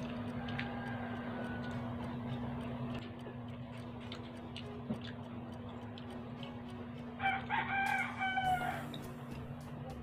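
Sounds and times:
faint steady ticking: 0.0 - 10.0
rooster crowing: 0.2 - 2.2, 7.2 - 8.9.

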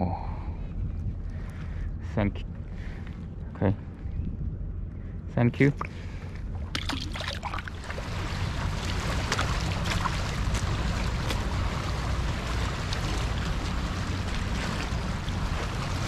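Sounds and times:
wind rumble on microphone: 0.0 - 16.0
waves splashing against rocks: 6.7 - 16.0.

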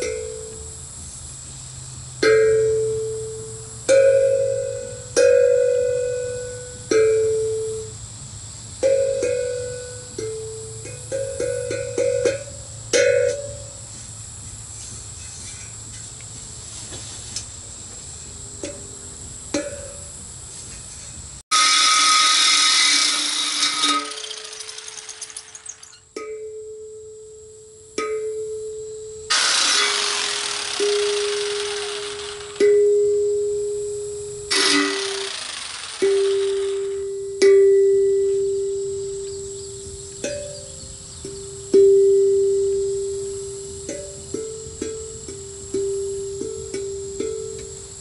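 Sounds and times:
power tool grinding metal: 21.5 - 26.0, 29.3 - 32.7, 34.5 - 37.0
steel tongue drum notes: 37.0 - 39.2, 40.2 - 47.8.

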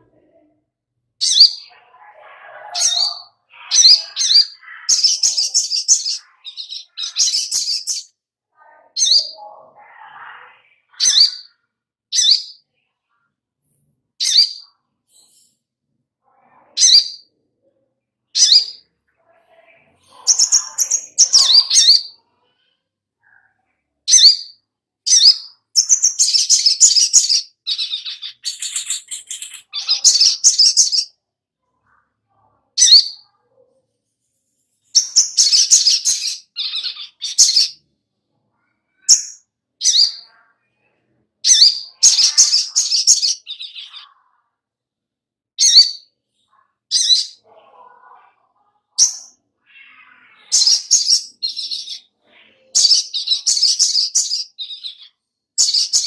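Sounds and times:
bird singing trilling bursts: 24.1 - 31.1.

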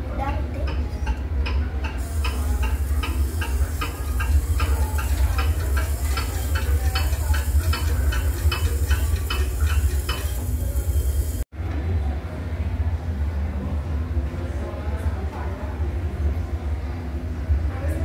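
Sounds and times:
steady low hum: 0.0 - 18.0
fast clock ticking: 1.1 - 11.4.

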